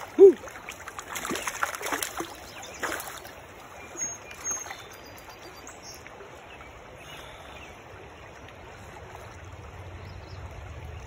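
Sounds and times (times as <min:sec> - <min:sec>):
fish splashing in water: 0:00.0 - 0:03.4
shallow stream rushing: 0:00.0 - 0:11.0.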